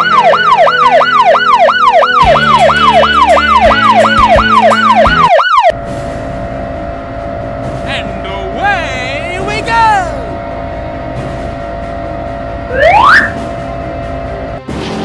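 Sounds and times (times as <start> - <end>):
electronic police siren wailing: 0.0 - 5.8, 12.6 - 13.5.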